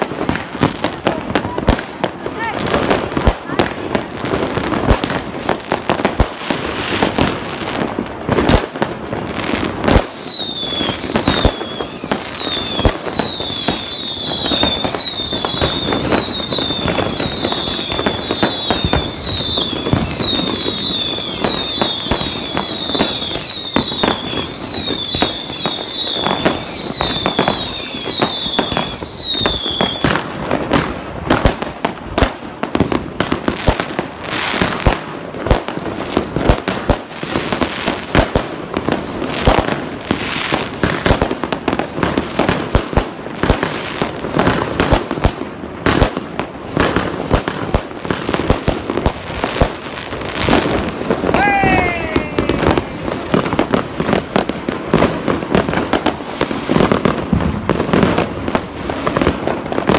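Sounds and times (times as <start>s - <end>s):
firework bangs and crackle: 0.0s - 59.9s
whistling firework shots: 9.8s - 31.6s.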